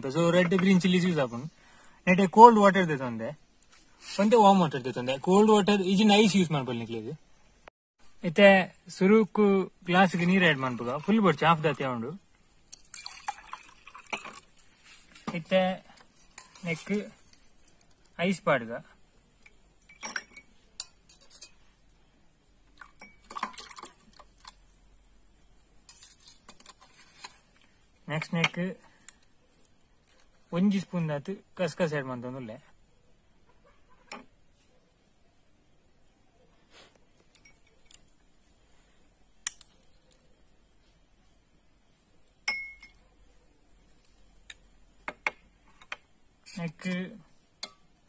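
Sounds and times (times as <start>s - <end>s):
spoon clinking on bowl and glasses: 19.8s - 21.6s, 22.8s - 23.8s, 42.5s - 43.0s.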